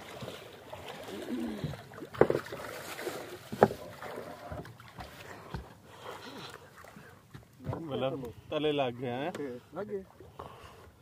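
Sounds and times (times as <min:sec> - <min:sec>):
sharp knocks on wooden boat: 0:02.1 - 0:02.5, 0:03.5 - 0:03.8, 0:04.5 - 0:05.7, 0:07.3 - 0:08.0.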